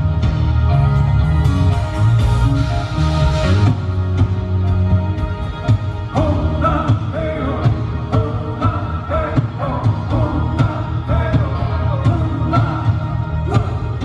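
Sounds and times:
live rock band playing: 0.0s - 14.0s
man singing: 6.0s - 14.0s.

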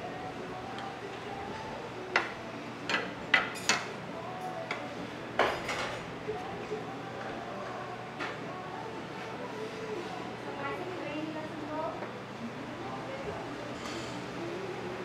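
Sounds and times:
dishes and utensils clinking: 2.2s - 4.8s, 5.4s - 6.1s, 13.7s - 14.3s.

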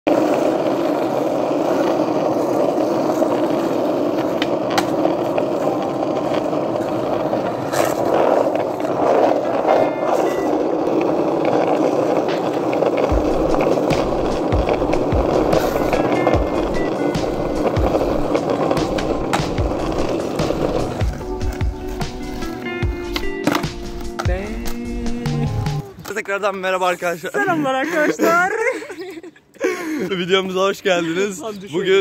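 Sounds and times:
skateboard wheels rolling on asphalt: 0.0s - 29.2s
low thudding music beat: 13.0s - 25.8s.

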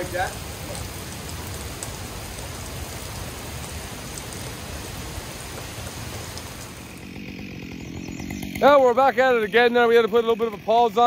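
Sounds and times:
heavy rain falling: 0.0s - 7.0s
faint rain drop ticks: 0.6s - 4.6s, 5.4s - 6.8s.

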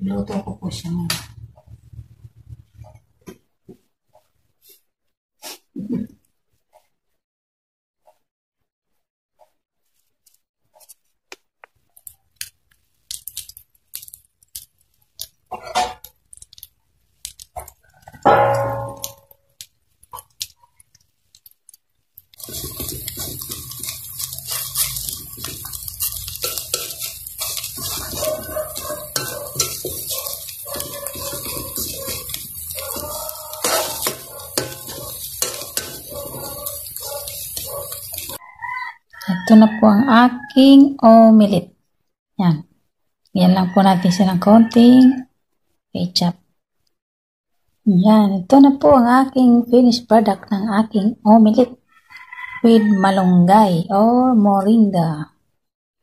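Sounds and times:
fork clinking against ceramic bowl: 18.3s - 19.3s, 22.6s - 38.4s
metal spoon scraping a wok: 22.4s - 38.4s.

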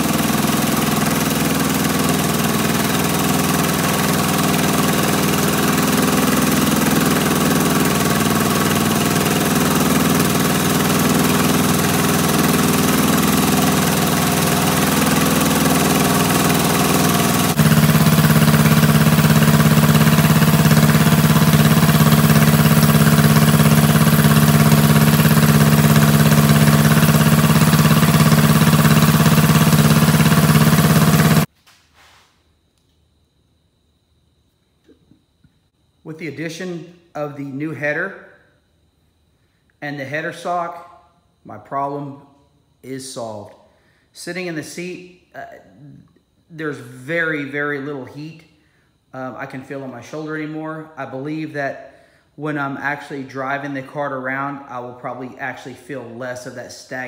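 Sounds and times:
go-kart engine idling: 0.0s - 31.5s.

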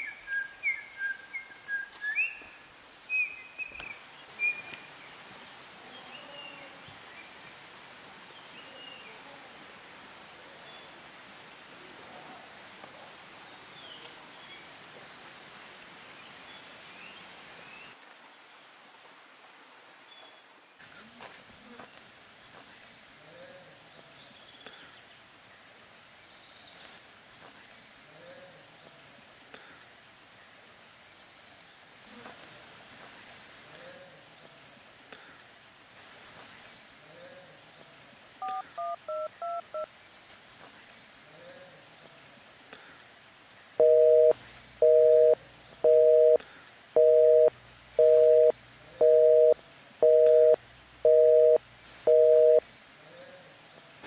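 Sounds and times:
faint outdoor ambience: 0.0s - 54.0s
telephone busy signal: 38.4s - 39.9s, 43.8s - 46.4s, 47.0s - 52.6s
telephone keypad tones: 38.4s - 39.9s, 43.8s - 46.4s, 47.0s - 52.6s.

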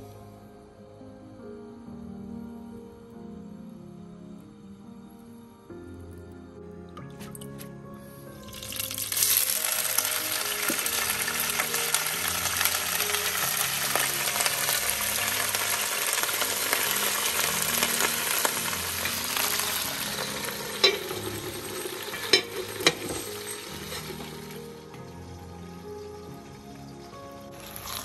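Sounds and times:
leeks sizzling in oil: 8.5s - 28.0s
heavy pot lid clanking: 20.5s - 24.3s.

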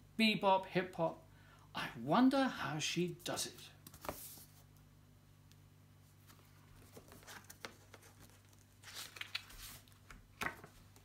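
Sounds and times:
faint steady hum: 0.0s - 11.0s
book page rustling: 3.8s - 4.7s, 6.1s - 11.0s.

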